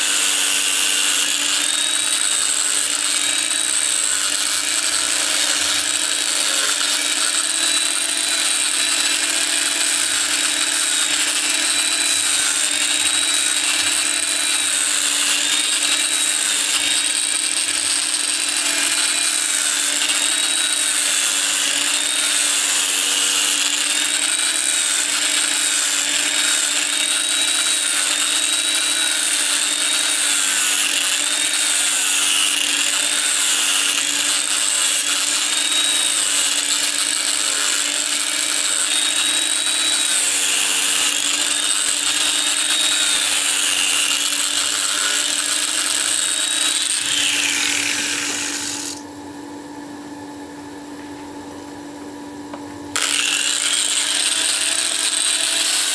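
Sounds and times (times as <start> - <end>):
angle grinder sanding steel: 0.0 - 49.0, 53.0 - 55.9.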